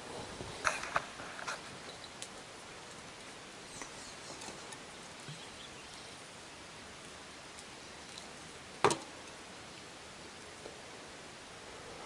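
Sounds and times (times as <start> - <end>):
light rain hissing: 0.0 - 12.0
faint high bird chirps: 5.2 - 6.2.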